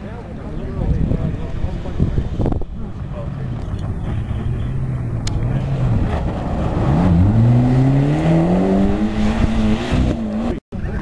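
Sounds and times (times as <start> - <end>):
rally car engine accelerating: 3.5 - 10.6.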